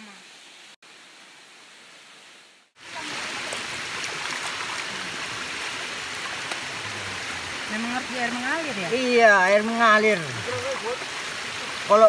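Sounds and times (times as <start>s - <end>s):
stream water pouring over weir: 2.8s - 12.0s
water splashing over hands: 3.0s - 9.0s.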